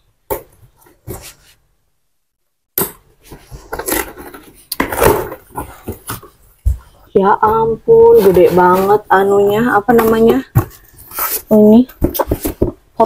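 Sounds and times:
cardboard rustling and scraping: 0.6s - 1.6s, 3.2s - 6.9s, 7.9s - 12.9s.

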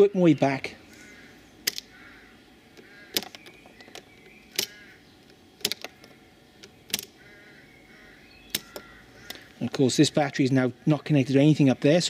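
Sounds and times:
sharp metallic clicks: 1.6s - 2.0s, 2.7s - 7.2s, 8.5s - 9.8s.

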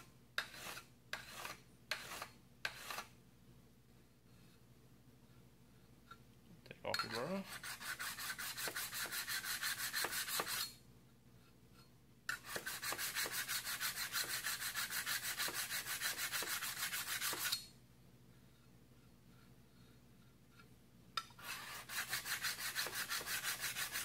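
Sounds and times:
diamond hone rasping on steel scraper: 0.4s - 3.1s, 6.9s - 10.8s, 12.3s - 17.7s, 21.2s - 24.0s.

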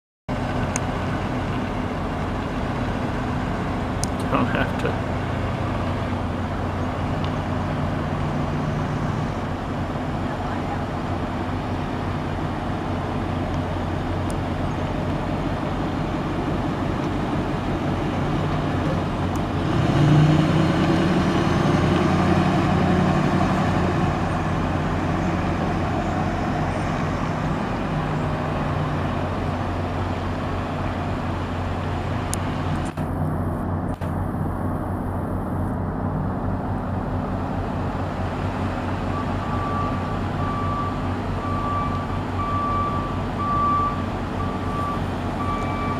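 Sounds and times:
diesel engine revving and idling: 0.3s - 45.9s
backup alarm beeping: 39.2s - 45.9s.

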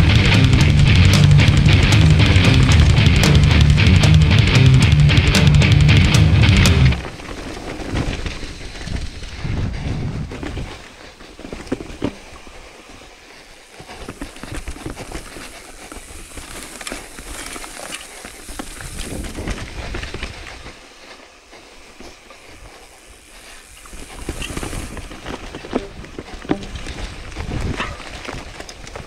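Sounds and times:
bike rattling: 0.0s - 29.0s
wind buffeting microphone: 6.0s - 11.0s, 23.9s - 29.0s
tyres crunching over stones: 13.7s - 20.8s, 23.2s - 29.0s.

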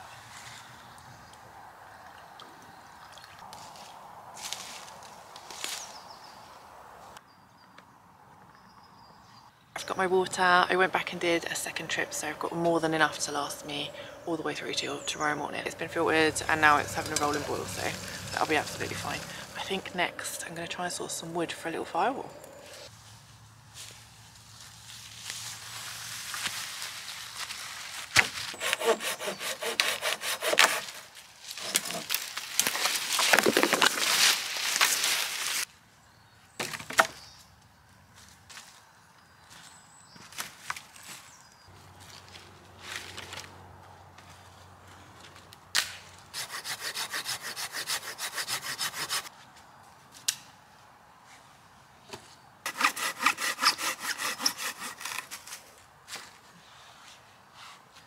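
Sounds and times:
hand saw cutting wood: 16.3s - 19.6s, 28.5s - 32.1s, 46.3s - 49.3s, 52.7s - 55.6s
wood rasping on wood: 28.5s - 31.1s, 46.4s - 49.3s, 52.7s - 55.5s.

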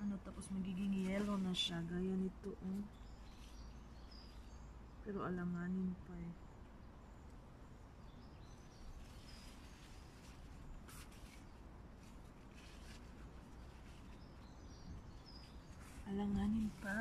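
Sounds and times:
distant bird chirps: 0.0s - 17.0s
soft rustle of plants: 0.0s - 17.0s.

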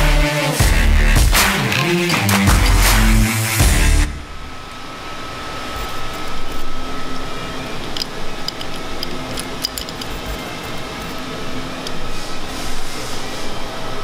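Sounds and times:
high whine: 0.0s - 8.3s
equipment humming: 0.0s - 14.0s.

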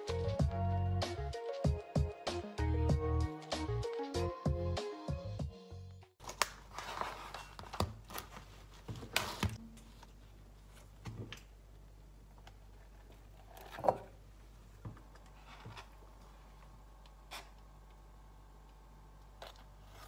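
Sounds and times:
faint low hum: 9.4s - 20.0s.

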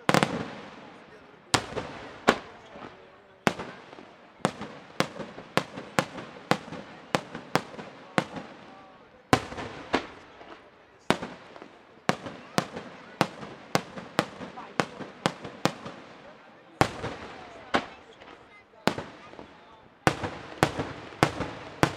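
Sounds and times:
firework shells bursting with echo: 1.6s - 8.7s, 9.3s - 21.9s.

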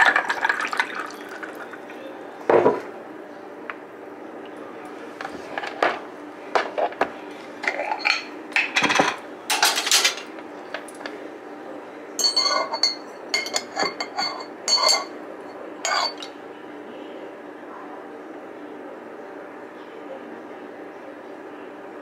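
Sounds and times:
glassware and utensils clinking: 7.6s - 10.3s, 12.2s - 15.2s, 15.8s - 16.3s.

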